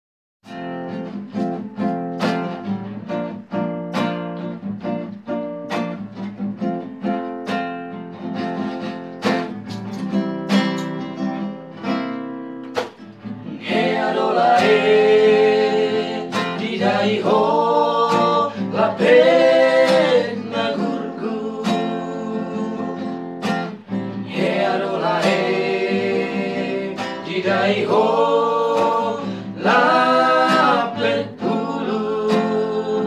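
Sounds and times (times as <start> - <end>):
acoustic guitar strumming: 0.4 - 33.0
men singing: 13.5 - 33.0.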